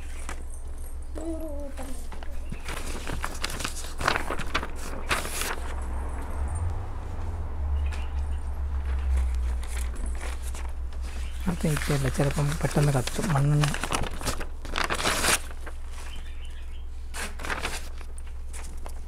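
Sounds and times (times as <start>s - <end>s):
paper rustling and crinkling: 1.2s - 6.3s, 8.8s - 19.0s
low rumble: 4.0s - 11.0s.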